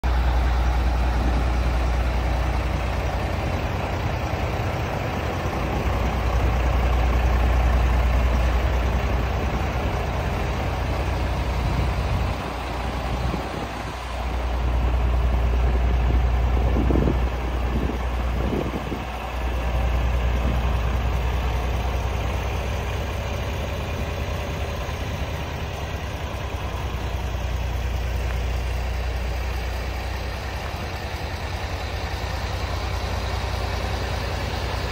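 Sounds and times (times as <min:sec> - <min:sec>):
diesel engine idling: 0:00.0 - 0:34.9.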